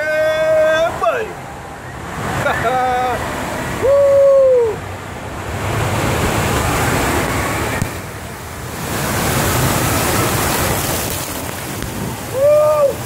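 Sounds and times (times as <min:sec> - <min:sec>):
air noise on microphone: 0:00.0 - 0:13.0
water rushing down a slide: 0:02.2 - 0:13.0
splashing: 0:05.5 - 0:13.0.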